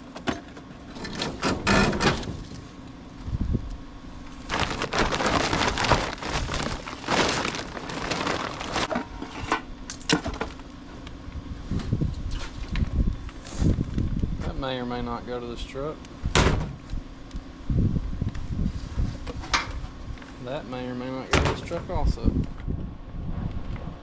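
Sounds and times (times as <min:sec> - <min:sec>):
scraping and rustling: 0:04.4 - 0:09.7.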